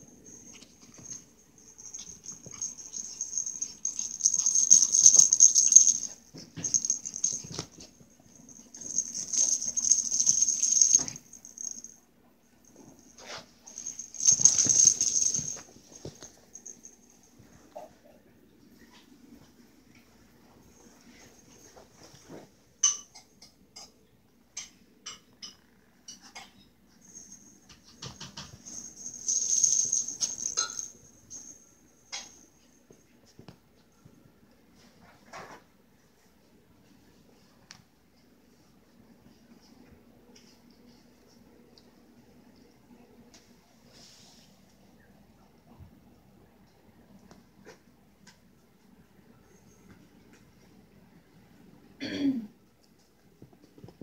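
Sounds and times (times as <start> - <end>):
dogs playing: 0.2 - 11.9.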